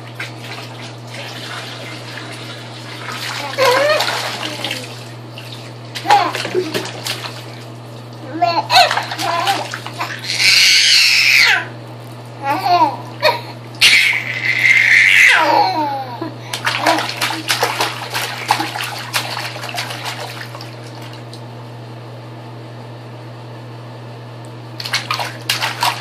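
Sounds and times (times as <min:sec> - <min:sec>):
steady low hum: 0:00.0 - 0:10.8, 0:11.5 - 0:26.0
hands splashing bath water: 0:00.0 - 0:11.2, 0:16.5 - 0:21.5, 0:24.8 - 0:26.0
baby squealing: 0:08.7 - 0:11.7, 0:13.8 - 0:15.9.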